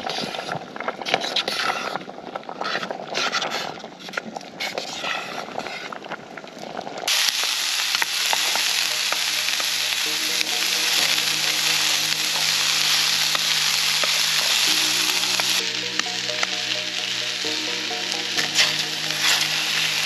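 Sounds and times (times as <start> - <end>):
vegetables sizzling in a frying pan: 7.0 - 20.0
spatula stirring: 18.4 - 20.0.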